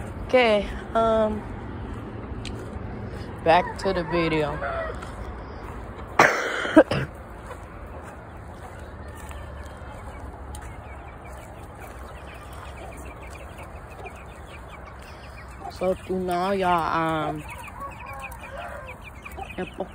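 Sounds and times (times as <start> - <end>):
chickens clucking: 0.0 - 19.9
person coughing: 6.2 - 7.2.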